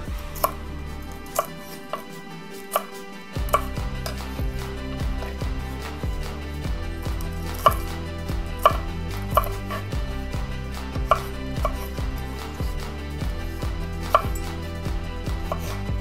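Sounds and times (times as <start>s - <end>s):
knife chopping on wooden board: 0.3s - 0.6s, 1.3s - 5.6s, 7.1s - 8.0s, 8.6s - 10.0s, 10.9s - 12.9s, 13.6s - 14.6s, 15.3s - 16.0s.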